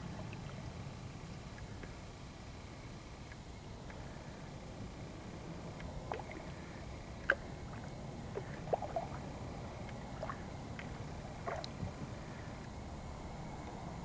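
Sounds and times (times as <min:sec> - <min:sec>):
low steady rumble: 0:00.0 - 0:14.0
paddle water drips and splashes: 0:05.8 - 0:12.3.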